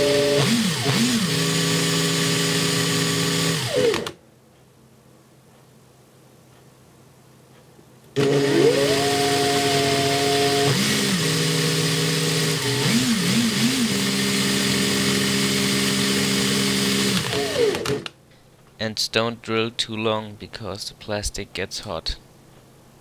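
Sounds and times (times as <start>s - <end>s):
cordless drill drilling plastic: 0.0s - 4.2s, 8.2s - 18.1s.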